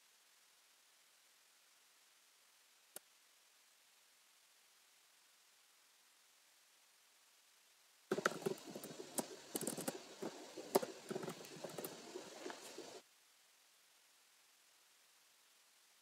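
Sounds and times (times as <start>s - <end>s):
keyboard typing: 8.1s - 12.9s.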